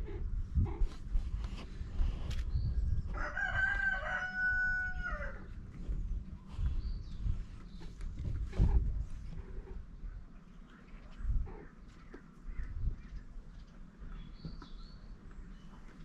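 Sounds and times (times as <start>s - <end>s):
rooster crowing: 3.1s - 5.5s.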